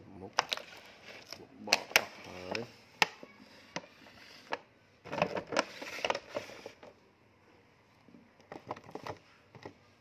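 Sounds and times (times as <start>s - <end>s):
plastic packaging crinkling: 0.2s - 3.8s, 4.4s - 6.9s.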